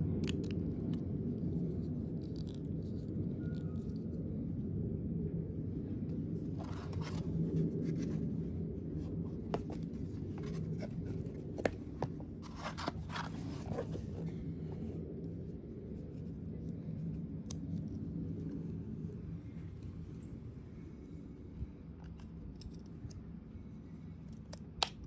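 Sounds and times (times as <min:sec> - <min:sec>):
low background hum: 0:00.0 - 0:25.0
plastic case handling noise: 0:06.5 - 0:08.3, 0:09.1 - 0:14.3.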